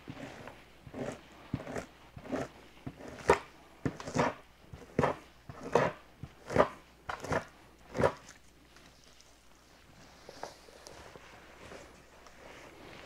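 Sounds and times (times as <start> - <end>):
knife scraping hide: 0.0 - 8.4.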